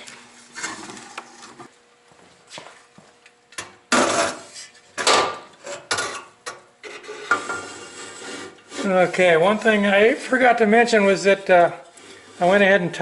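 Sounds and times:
metal knocks clanks and scrapes: 3.9 - 8.6.

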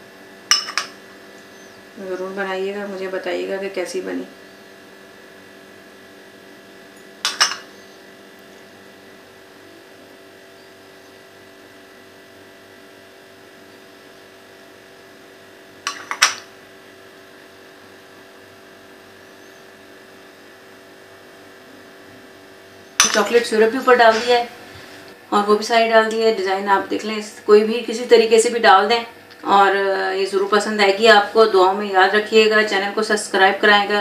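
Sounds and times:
low electrical hum: 0.0 - 34.0
kitchen items knocking: 7.3 - 7.7, 23.0 - 23.4.

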